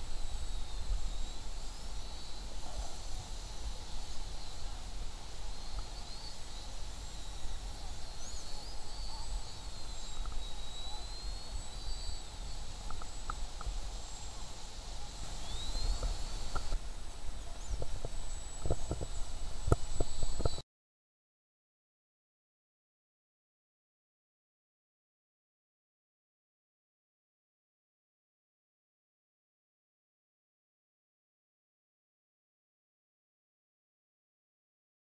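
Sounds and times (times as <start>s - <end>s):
wind rumble on microphone: 0.0s - 20.6s.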